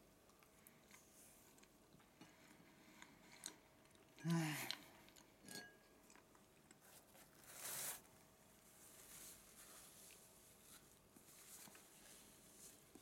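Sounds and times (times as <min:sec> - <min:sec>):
tissue rustling: 0:07.0 - 0:13.0.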